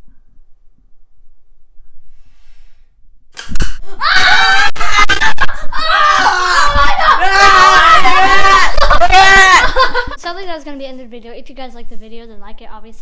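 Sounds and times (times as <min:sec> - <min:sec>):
boy yelling and shrieking: 0:04.0 - 0:09.9.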